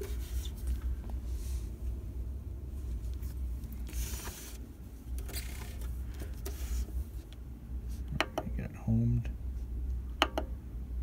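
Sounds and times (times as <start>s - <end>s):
rustling and rubbing: 0.0s - 1.9s, 2.7s - 7.3s.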